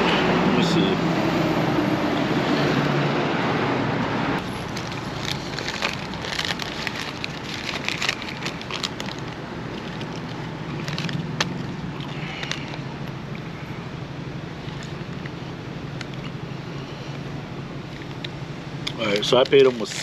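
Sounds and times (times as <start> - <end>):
road traffic passing: 0.0 - 20.0
paper crinkling and rustling: 4.4 - 12.8, 19.0 - 20.0.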